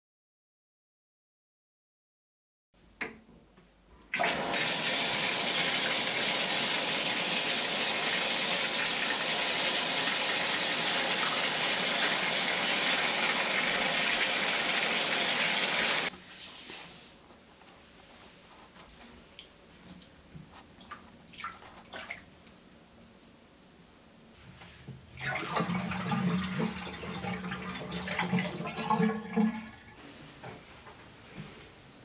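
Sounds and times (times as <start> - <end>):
tap water pouring into bathtub: 4.1 - 16.8, 25.2 - 30.0.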